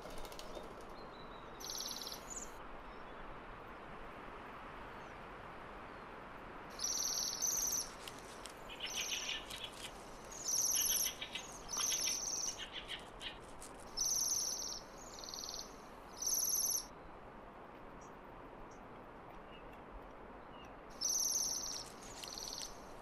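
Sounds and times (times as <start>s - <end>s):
faint steady hiss: 0.0s - 23.0s
songbirds trilling: 1.6s - 2.6s, 6.7s - 16.9s, 21.0s - 22.8s.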